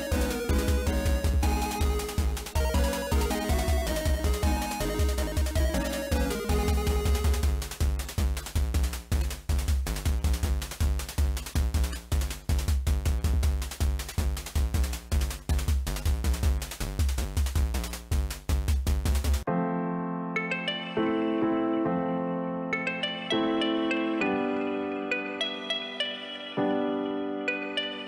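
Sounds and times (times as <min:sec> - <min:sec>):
electronic music with drum beat: 0:00.0 - 0:19.5.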